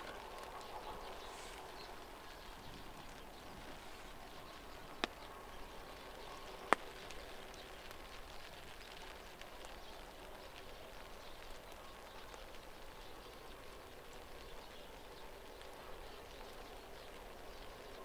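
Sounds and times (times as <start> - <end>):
soft outdoor hiss: 0.0 - 18.0.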